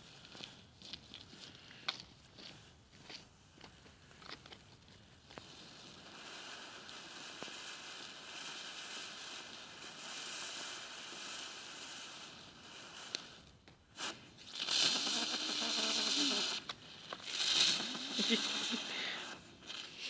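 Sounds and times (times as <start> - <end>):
firework fountain hissing sparks: 4.8 - 20.0.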